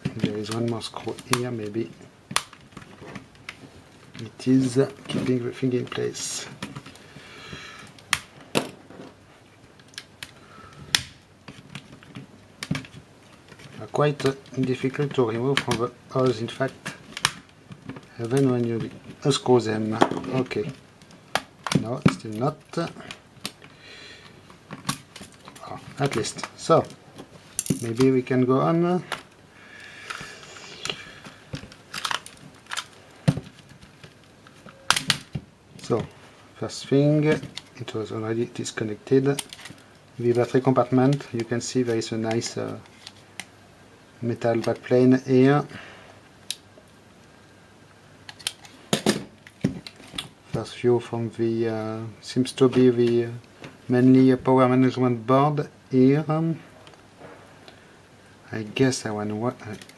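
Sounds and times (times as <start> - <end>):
plastic parts clicking: 30.8 - 35.4, 39.3 - 39.8, 48.3 - 50.3.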